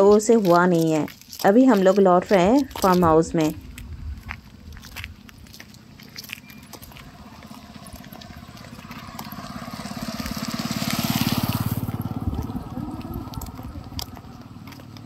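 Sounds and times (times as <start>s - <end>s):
motorcycle passing by: 6.4s - 15.0s.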